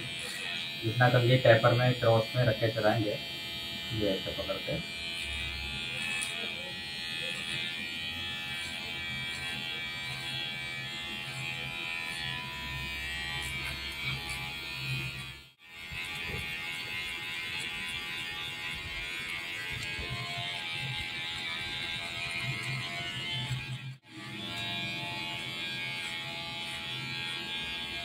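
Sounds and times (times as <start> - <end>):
hair clipper whining: 0.0 - 28.0.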